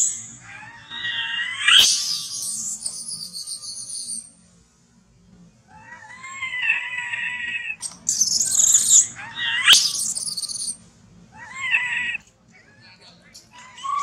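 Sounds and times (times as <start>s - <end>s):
baby monkey crying and screaming: 0.0s - 4.2s, 5.7s - 12.2s, 13.5s - 14.0s.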